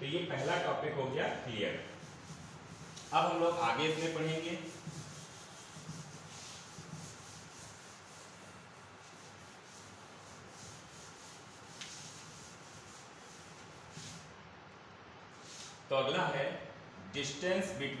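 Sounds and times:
duster rubbing on chalkboard: 0:01.3 - 0:14.3.

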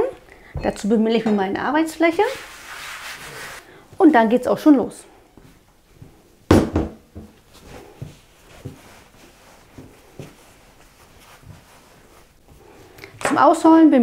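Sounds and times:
dough kneading thumps and rubbing: 0:05.4 - 0:13.0.

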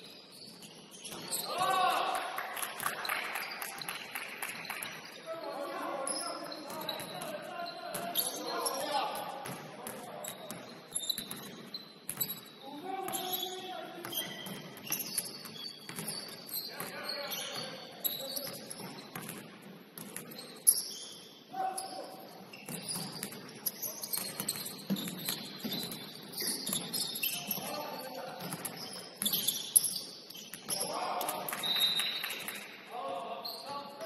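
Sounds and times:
sneakers squeaking on court: 0:00.0 - 0:01.6, 0:02.8 - 0:32.6, 0:33.4 - 0:34.0.

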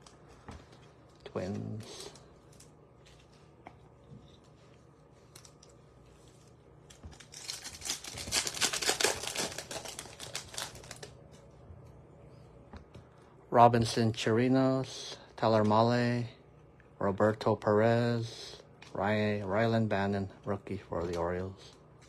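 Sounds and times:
foil wrapper crinkling: 0:06.3 - 0:11.2.

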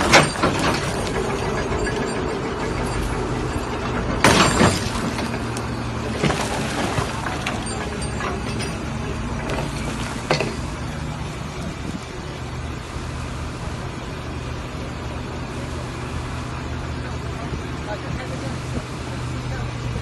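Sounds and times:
excavator engine and hydraulic hum: 0:00.0 - 0:20.0.

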